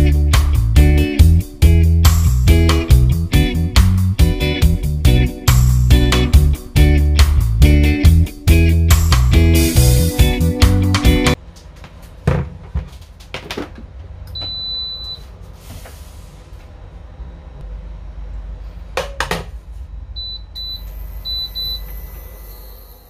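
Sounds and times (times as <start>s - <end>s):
cooktop power-on beep: 14.4s - 15.2s, 20.2s - 23.0s
short touch-panel beeps: 20.2s - 22.2s.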